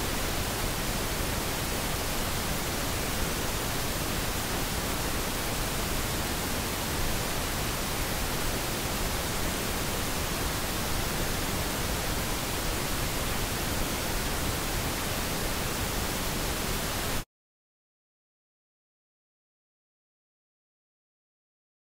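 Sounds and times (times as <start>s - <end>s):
pink noise hiss: 0.0s - 17.2s.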